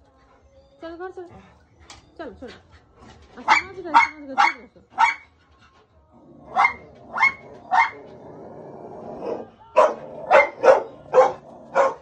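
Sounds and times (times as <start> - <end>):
dog barking: 3.4 - 5.3, 6.5 - 8.0, 9.8 - 12.0.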